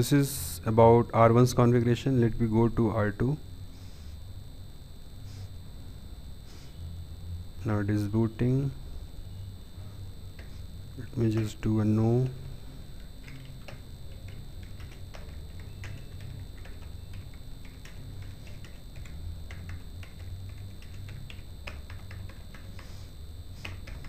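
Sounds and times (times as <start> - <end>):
faint high steady tone: 0.0 - 24.0
low electrical hum: 0.0 - 24.0
computer keyboard typing: 13.0 - 24.0.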